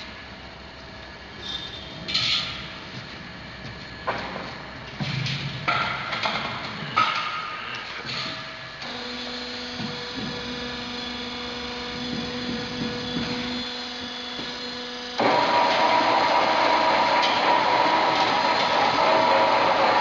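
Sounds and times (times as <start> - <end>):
rollers working sheet metal: 15.2 - 20.0.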